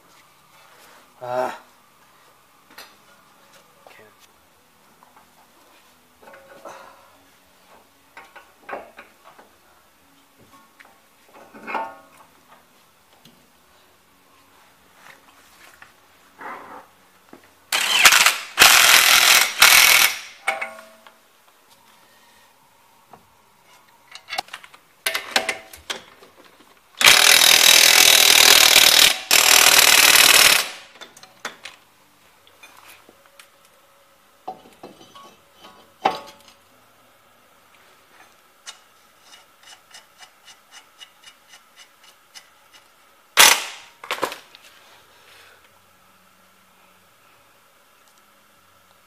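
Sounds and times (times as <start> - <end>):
impact wrench bursts: 17.7 - 20.5, 27.0 - 31.0, 43.4 - 43.9.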